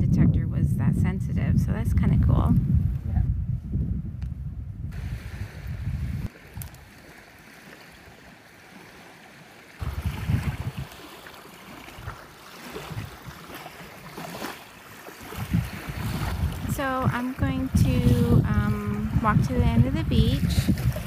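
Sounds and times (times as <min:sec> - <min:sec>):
wind buffeting microphone: 0:00.0 - 0:07.2, 0:09.8 - 0:14.5, 0:15.2 - 0:21.0
small waves on a beach: 0:04.9 - 0:21.0.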